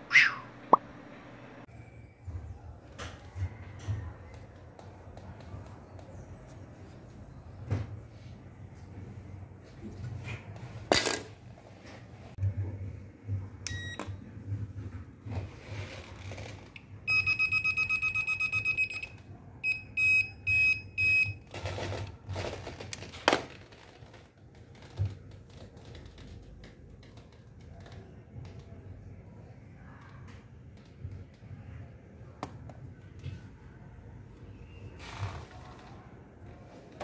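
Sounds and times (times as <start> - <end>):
voltage tester beeping: 13.7 - 14.0, 17.1 - 21.4.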